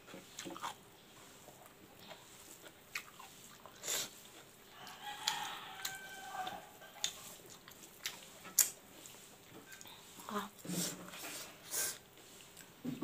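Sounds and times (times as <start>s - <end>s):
rooster crowing: 4.7s - 7.0s.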